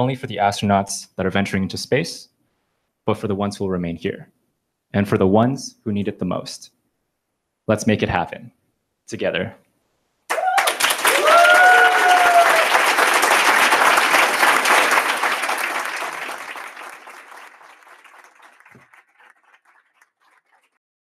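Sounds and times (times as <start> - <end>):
person whooping: 10.3 - 13.1
audience applauding: 10.3 - 20.8.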